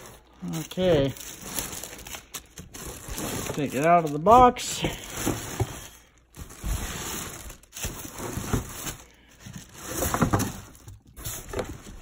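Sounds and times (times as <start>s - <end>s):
plastic film crinkling: 0.0s - 12.0s
cardboard scraping: 2.7s - 12.0s.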